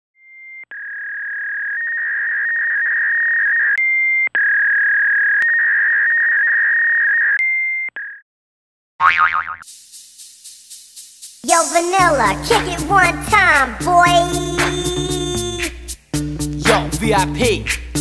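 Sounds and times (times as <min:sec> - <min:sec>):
high electronic tone: 0:13.8 - 0:15.7.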